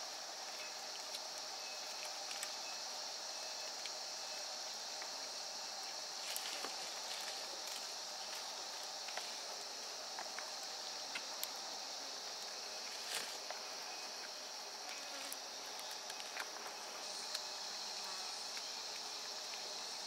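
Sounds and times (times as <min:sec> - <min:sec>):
insects chirring: 0:00.0 - 0:20.0.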